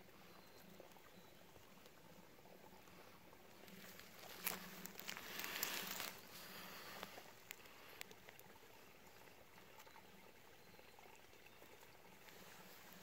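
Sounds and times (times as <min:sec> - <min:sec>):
low steady hiss: 0:00.0 - 0:13.0
rustling of twigs and leaves: 0:00.6 - 0:09.2, 0:12.2 - 0:13.0
faint clicks: 0:06.9 - 0:08.6.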